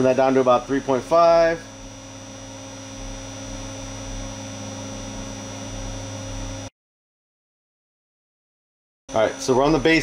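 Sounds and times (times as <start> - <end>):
electrical hum and buzz: 0.0 - 6.7, 9.1 - 10.0.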